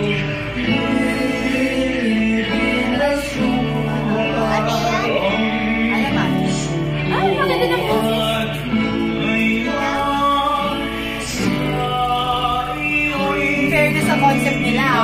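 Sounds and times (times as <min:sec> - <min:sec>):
male vocal group singing ballad: 0:00.0 - 0:15.0
strummed acoustic guitars: 0:00.0 - 0:15.0.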